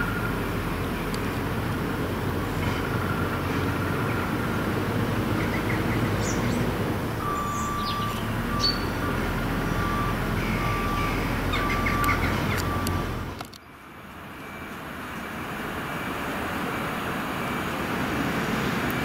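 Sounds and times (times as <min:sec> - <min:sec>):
birds chirping: 0:02.4 - 0:13.8.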